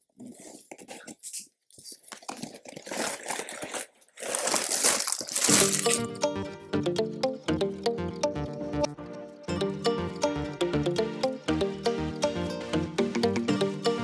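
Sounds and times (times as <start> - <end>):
cardboard box tearing: 2.1 - 5.8
background music: 5.4 - 14.0.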